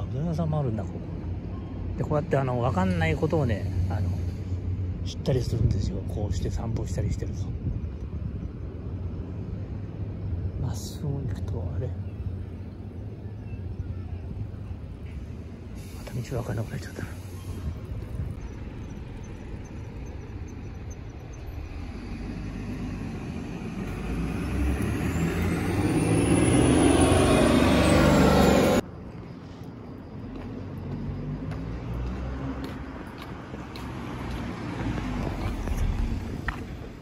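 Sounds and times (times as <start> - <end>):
traffic noise: 0.0 - 37.0
vehicle driving past: 17.2 - 28.8.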